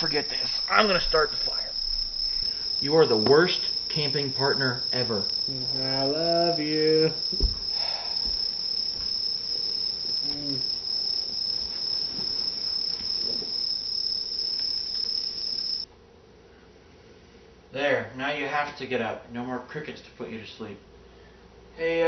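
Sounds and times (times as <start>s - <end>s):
recorded crickets chirping: 0.0s - 15.9s, 20.6s - 22.0s
thump: 7.3s - 9.1s.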